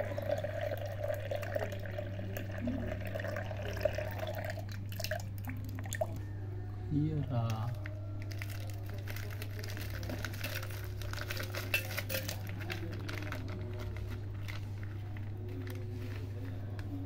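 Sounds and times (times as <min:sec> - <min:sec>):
plastic pouch crinkling: 0:07.7 - 0:17.0.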